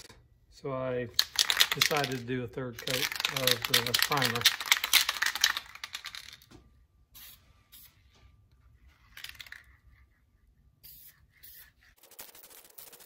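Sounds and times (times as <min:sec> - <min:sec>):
aerosol spray can hissing: 0:10.8 - 0:13.0.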